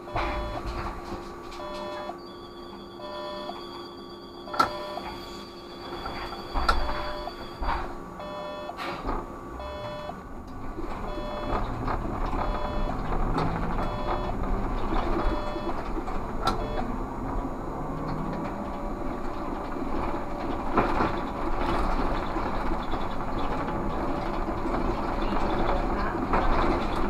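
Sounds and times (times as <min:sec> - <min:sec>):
trolleybus running and road noise: 0:00.0 - 0:27.0
electronic beeping: 0:00.1 - 0:00.7, 0:01.6 - 0:08.8, 0:09.6 - 0:10.2, 0:11.1 - 0:11.7, 0:12.4 - 0:13.1, 0:13.8 - 0:14.4, 0:15.2 - 0:15.8, 0:16.5 - 0:17.0.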